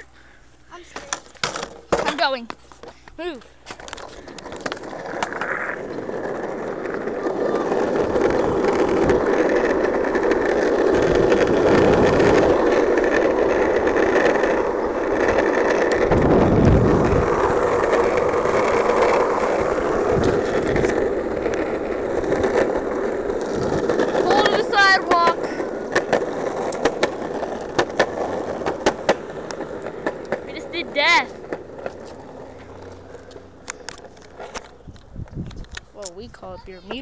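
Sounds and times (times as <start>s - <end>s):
longboard wheels rolling on asphalt: 0.0s - 37.0s
wind gusts buffeting microphone: 10.4s - 14.0s, 14.8s - 26.6s, 34.8s - 37.0s.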